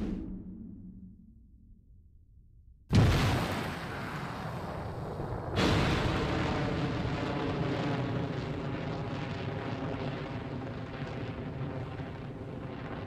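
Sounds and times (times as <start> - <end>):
rocket launch roar: 2.9 - 13.0.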